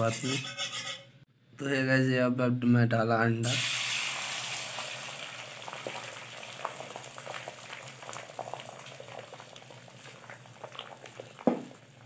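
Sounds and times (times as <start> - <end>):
egg sizzling in hot oil: 3.5 - 12.0
oil crackles and pops: 4.0 - 12.0.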